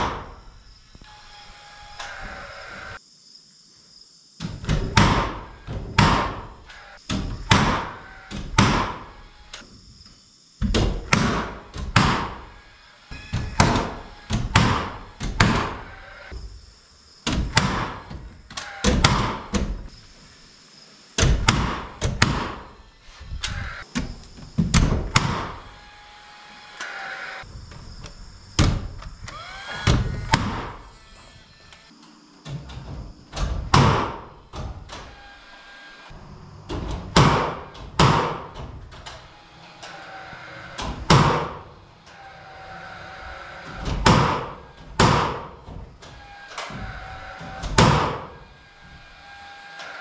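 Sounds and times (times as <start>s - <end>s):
hammer nailing into wood: 7.1s - 9.1s, 10.7s - 12.4s, 13.3s - 15.8s, 17.2s - 19.7s, 21.2s - 22.6s, 24.6s - 25.6s, 36.8s - 38.6s, 40.8s - 41.6s, 43.9s - 45.6s, 47.6s - 48.3s.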